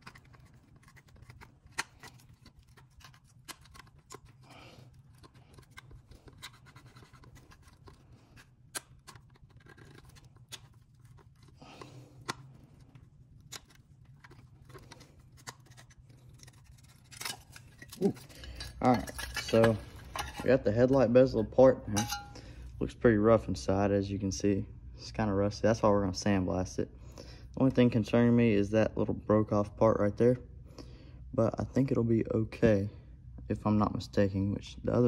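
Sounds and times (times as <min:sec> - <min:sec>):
low steady hum: 0:00.0 - 0:35.0
screwdriver scraping metal: 0:15.5 - 0:20.6.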